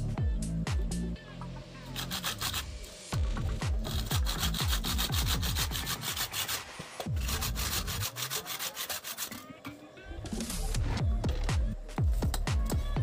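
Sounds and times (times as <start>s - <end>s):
hand saw cutting wood: 1.9s - 2.6s, 3.8s - 9.5s.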